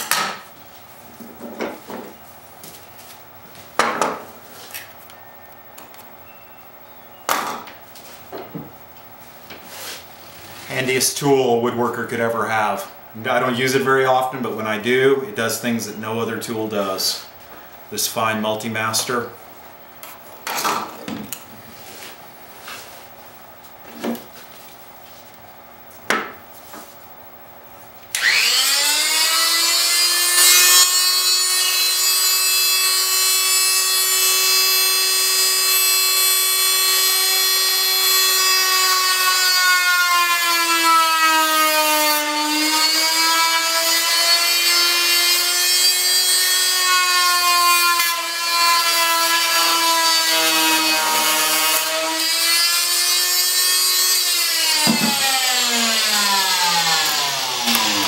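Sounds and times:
oscillating tool cutting plastic: 51.7s - 58.0s.

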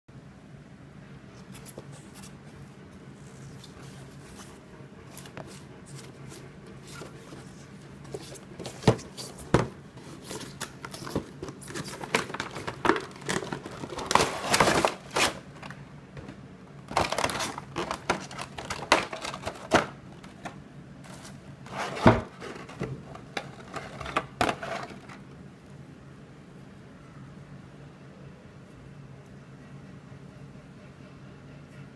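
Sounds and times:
plastic packaging crinkling: 6.8s - 20.5s.

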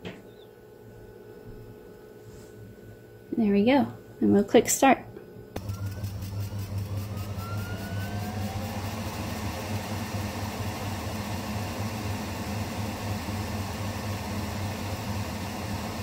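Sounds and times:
airflow rush: 5.6s - 16.0s
laser cutter machine hum: 5.6s - 16.0s
motor whines: 5.6s - 16.0s.

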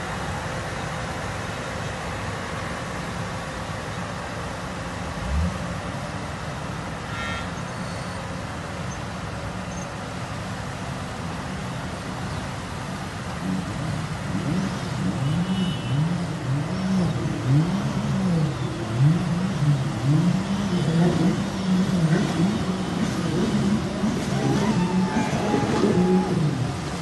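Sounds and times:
rushing water: 0.0s - 27.0s
jet ski engine revving: 13.4s - 27.0s.

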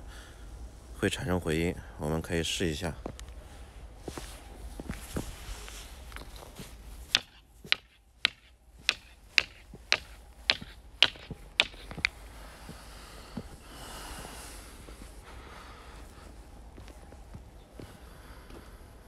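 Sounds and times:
stone knocking on stone: 7.1s - 12.2s.

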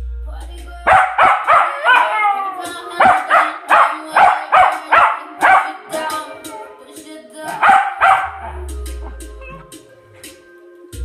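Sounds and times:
pop music playing: 0.3s - 10.5s
dog howling and yipping: 0.9s - 6.6s, 7.5s - 9.7s.

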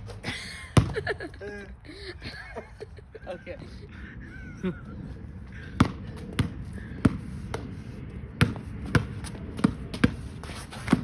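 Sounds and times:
basketball bouncing on asphalt: 0.0s - 1.2s, 5.5s - 11.0s.

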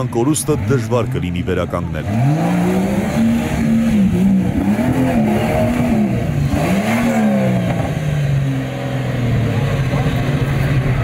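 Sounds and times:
engine revving hard: 1.9s - 9.3s.

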